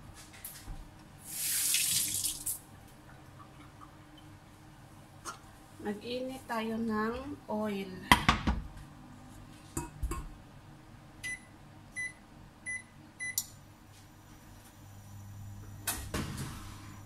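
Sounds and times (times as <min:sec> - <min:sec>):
low hum of hob: 0:02.6 - 0:17.0
cooktop touch control beeps: 0:11.2 - 0:13.4.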